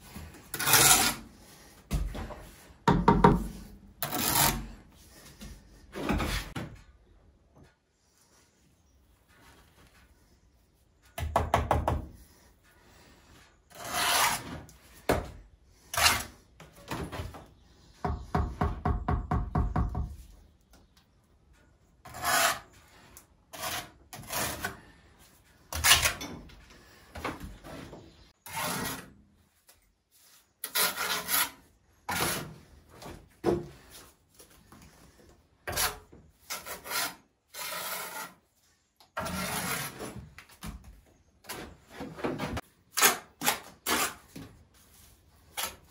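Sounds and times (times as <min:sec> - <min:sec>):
trowel scraping mortar: 0:00.2 - 0:01.6, 0:03.5 - 0:04.8, 0:13.7 - 0:14.7, 0:15.8 - 0:16.5, 0:22.0 - 0:24.9, 0:28.4 - 0:29.2, 0:30.2 - 0:32.7, 0:35.7 - 0:38.5, 0:39.2 - 0:40.3, 0:42.6 - 0:44.4.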